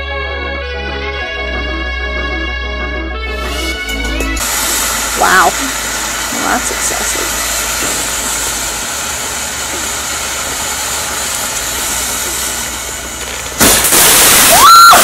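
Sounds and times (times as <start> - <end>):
fountain firework hissing: 3.4 - 15.0.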